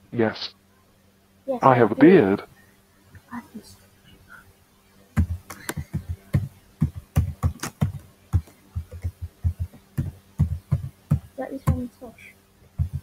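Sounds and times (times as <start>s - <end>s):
computer keyboard typing: 5.2s - 11.8s, 12.8s - 13.0s.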